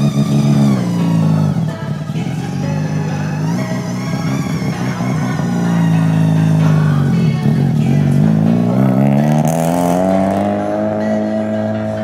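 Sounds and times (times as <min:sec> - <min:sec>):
rotary engine revving: 0:00.0 - 0:12.0.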